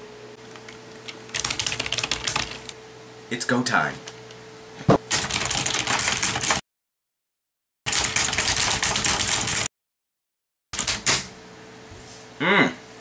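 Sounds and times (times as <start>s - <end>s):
fast typing on keyboard: 0.6s - 2.8s, 5.1s - 6.6s, 7.9s - 9.7s, 10.8s - 11.2s.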